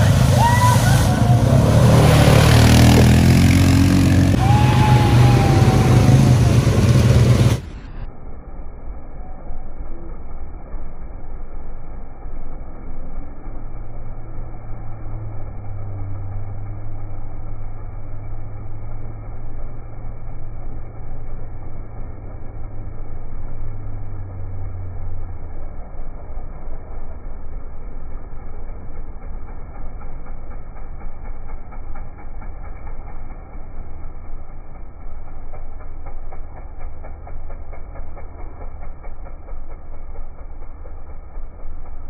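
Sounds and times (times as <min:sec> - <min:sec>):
quad bike engine running: 0:00.0 - 0:08.1, 0:12.0 - 0:42.0
rough rumble: 0:00.0 - 0:09.0.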